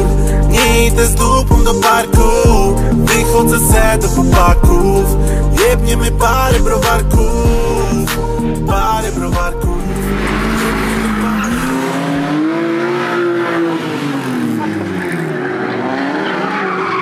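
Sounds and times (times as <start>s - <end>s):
car engine revving: 7.9s - 17.0s
tyres squealing: 10.0s - 17.0s.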